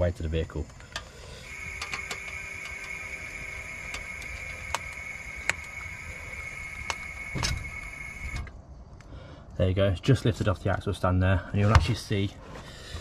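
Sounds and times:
sharp clicks: 0.7 - 9.1
compressed air hissing: 1.0 - 8.5.

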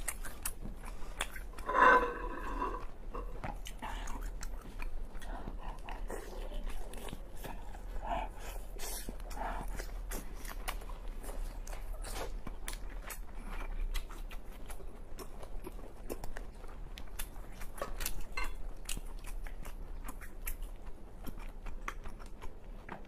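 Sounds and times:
person chewing wetly: 0.0 - 23.0.

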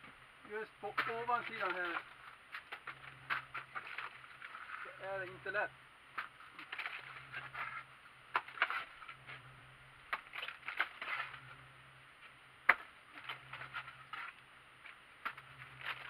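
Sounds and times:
trowel scraping wet mortar: 6.2 - 9.4, 10.1 - 11.6.

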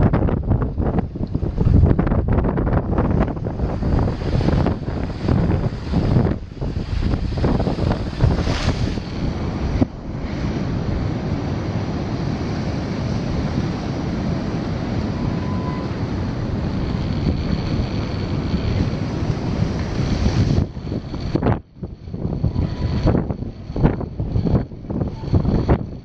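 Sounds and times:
wind buffeting microphone: 0.0 - 26.0
surf breaking on shore: 0.8 - 25.9.

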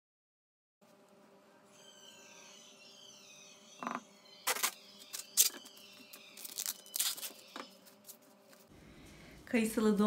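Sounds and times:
cling film crinkling: 6.4 - 8.6.

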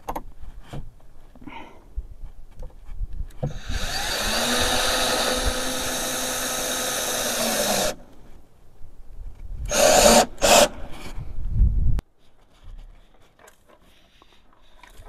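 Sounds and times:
electric power tool motor: 3.5 - 8.0.

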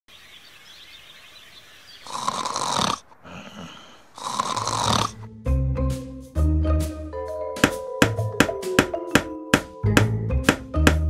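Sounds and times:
person snoring loudly: 2.0 - 5.3
quiet breath: 2.1 - 5.2.

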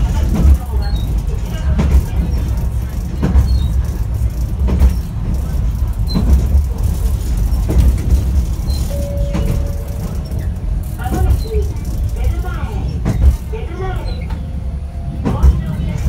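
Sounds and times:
tram low rumble: 0.0 - 16.0
steady two-note tone: 8.9 - 10.4.

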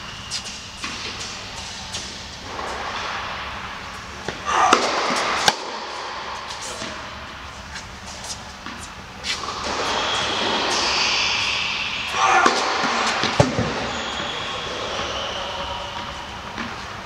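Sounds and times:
rackets striking tennis ball: 0.3 - 17.0
tennis ball bouncing: 8.2 - 11.6, 16.0 - 16.8.

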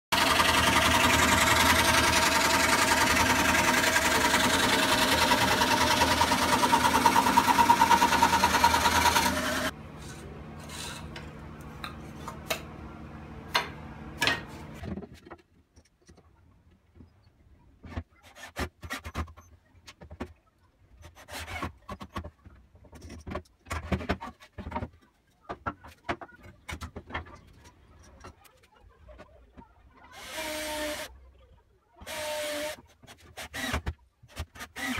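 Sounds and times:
scroll saw buzzing: 0.1 - 9.8, 34.6 - 34.9.

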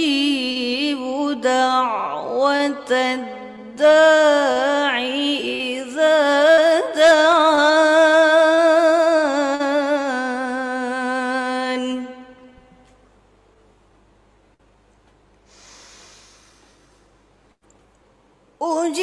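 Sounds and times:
woman reciting melodically: 0.0 - 12.6, 18.6 - 19.0.

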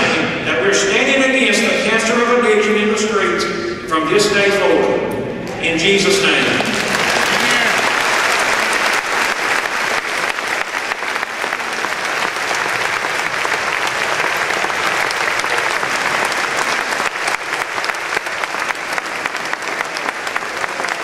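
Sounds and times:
large audience applause: 6.4 - 21.0.

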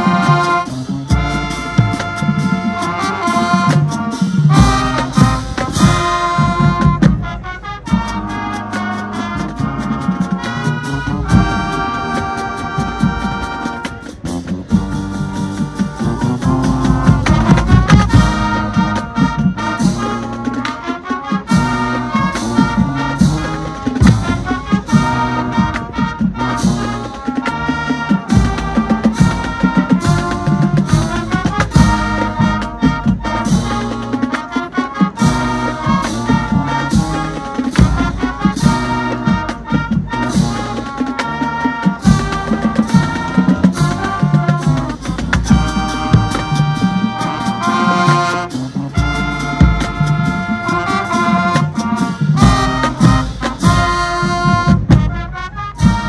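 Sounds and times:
drumline beat: 0.0 - 56.0
marching band brass: 0.0 - 56.0.

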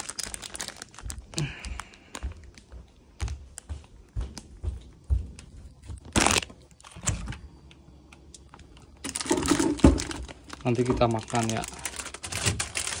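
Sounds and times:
plastic packaging crinkling: 0.0 - 3.1, 6.0 - 7.2, 8.4 - 13.0
soft footsteps: 0.8 - 6.2.

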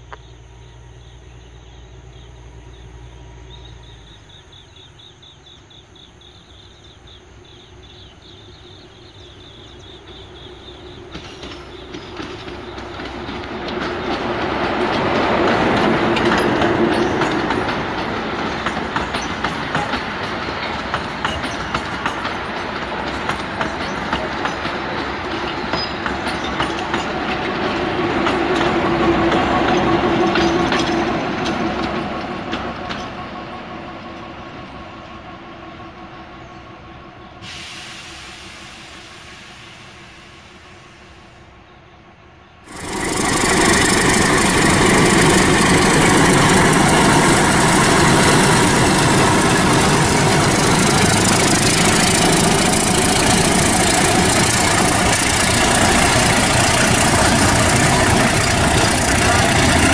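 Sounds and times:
diesel locomotive passing: 0.0 - 59.9
passenger train rumbling past: 0.0 - 59.9.

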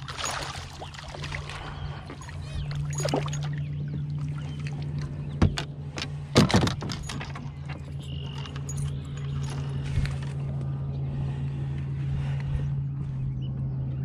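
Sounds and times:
water splashing: 0.0 - 5.2
steady low hum: 0.0 - 14.0.

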